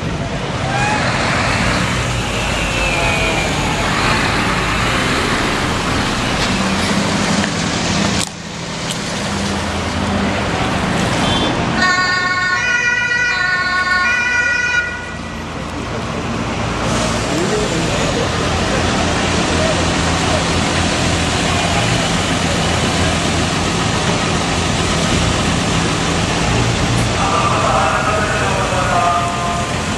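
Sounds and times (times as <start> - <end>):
street and engine noise: 0.0 - 29.9
two-tone emergency horn: 11.2 - 15.3
police siren gliding in pitch: 11.8 - 15.2.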